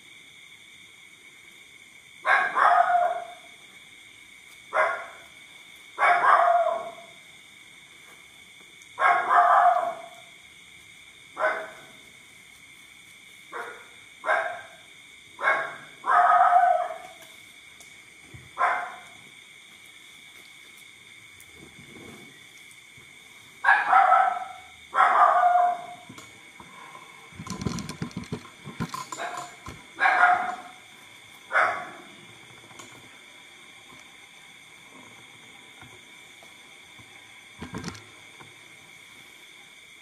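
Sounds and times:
dog barking: 2.2s - 3.5s, 4.7s - 5.2s, 6.0s - 7.1s, 9.0s - 10.2s, 11.4s - 11.9s, 13.5s - 14.8s, 15.4s - 17.1s, 18.6s - 19.2s, 23.6s - 26.0s, 30.0s - 30.8s, 31.5s - 32.0s.

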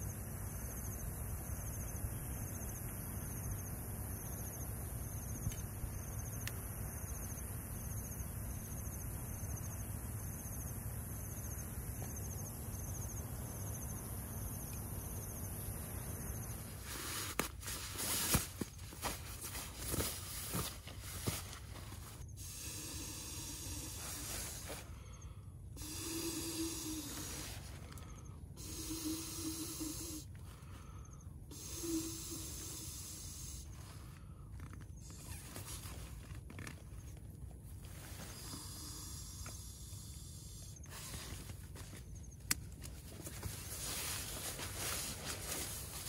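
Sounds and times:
person blowing into valve: 22.4s - 24.8s, 25.8s - 27.8s, 28.6s - 30.3s, 31.5s - 33.8s.

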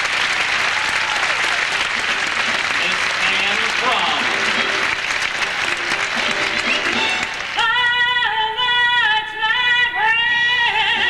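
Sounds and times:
audience applause: 0.0s - 7.8s
woman singing: 7.6s - 11.0s.

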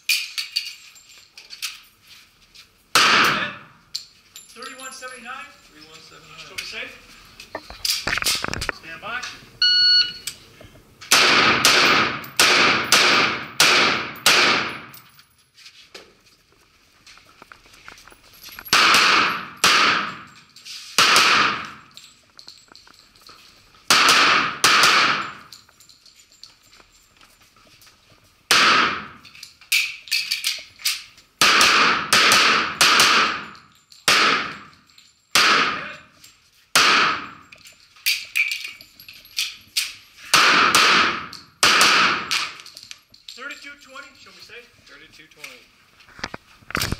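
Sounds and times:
pistol shots echoing indoors: 2.9s - 3.7s, 11.1s - 15.0s, 18.7s - 20.4s, 21.0s - 21.9s, 23.9s - 25.5s, 28.5s - 30.0s, 31.4s - 35.8s, 36.7s - 37.4s, 40.3s - 42.6s.

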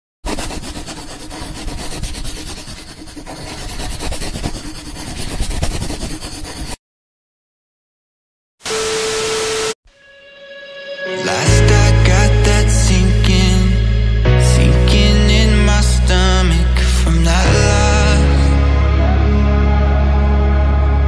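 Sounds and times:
marker scribbling on paper: 0.2s - 6.8s.

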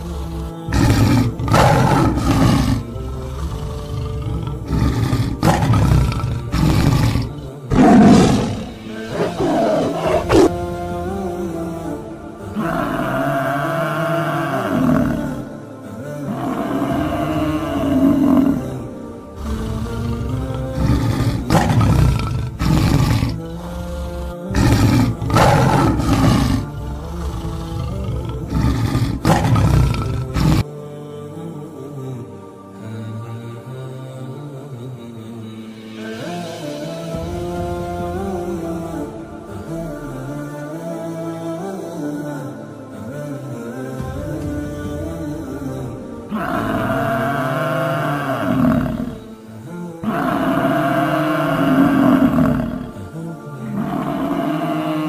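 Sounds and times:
big cat roaring and growling: 0.0s - 10.6s, 12.6s - 15.5s, 16.3s - 30.6s, 45.1s - 49.3s, 50.0s - 53.0s, 53.8s - 55.0s
background music: 0.0s - 55.0s.

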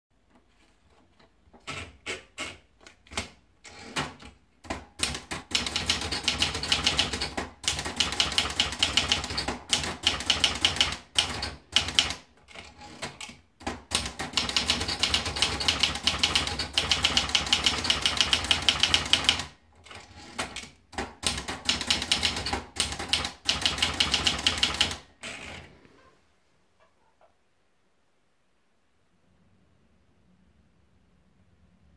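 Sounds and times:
typewriter paper loading clacks: 1.5s - 25.6s
fast typewriter typing: 1.6s - 25.6s.

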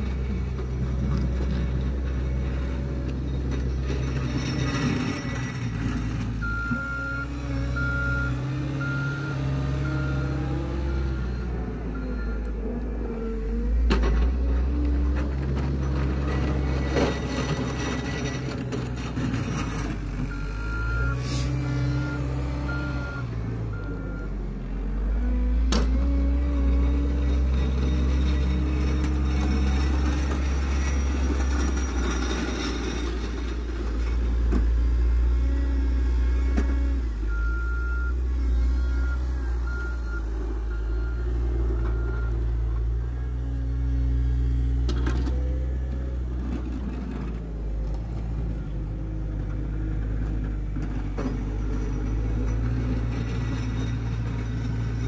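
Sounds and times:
diesel engine running: 0.0s - 55.0s
reversing alarm beeping: 6.4s - 12.6s, 20.3s - 24.4s, 37.3s - 42.6s.

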